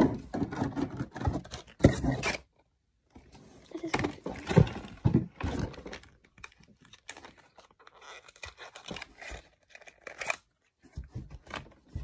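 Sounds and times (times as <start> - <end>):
packaging tearing and crinkling: 5.7 - 10.7.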